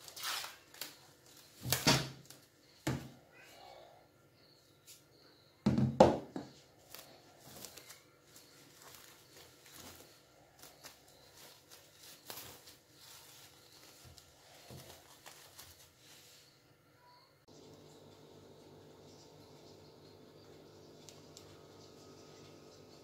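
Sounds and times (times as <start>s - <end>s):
plastic cling film crinkling: 0.0s - 2.6s, 6.8s - 16.5s.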